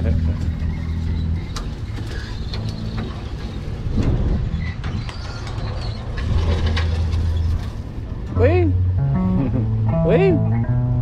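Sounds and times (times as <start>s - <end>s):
boat motor running: 0.0s - 4.6s.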